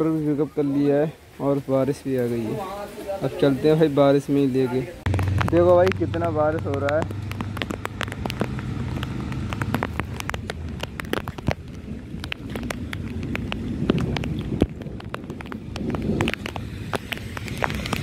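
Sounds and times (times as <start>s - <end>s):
heavy rain on pavement: 0.0s - 18.0s
raindrops ticking near microphone: 0.0s - 18.0s
low rumble: 5.0s - 18.0s.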